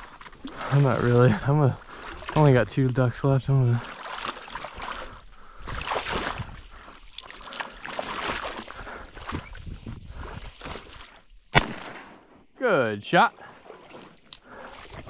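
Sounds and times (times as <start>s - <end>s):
rustling cattails: 0.0s - 1.2s
wind: 0.0s - 15.0s
shotgun shot: 11.5s - 12.3s.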